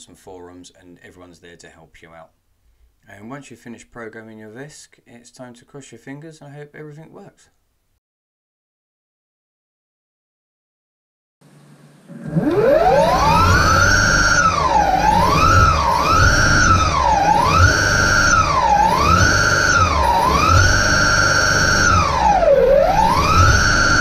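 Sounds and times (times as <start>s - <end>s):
electric motors whining: 12.1s - 24.0s.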